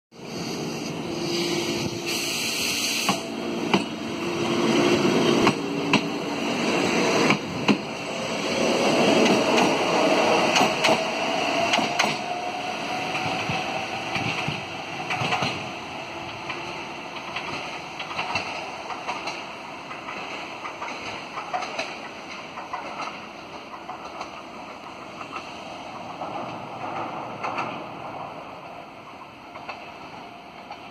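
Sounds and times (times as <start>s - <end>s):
tram motor whine: 0.2s - 21.1s
tram wheels knocking over rail joints: 3.0s - 4.0s, 5.3s - 8.0s, 8.6s - 24.4s.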